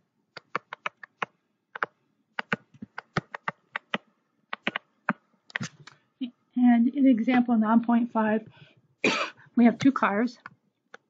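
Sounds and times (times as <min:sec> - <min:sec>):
pen clicks and taps on whiteboard: 0:00.3 - 0:05.7.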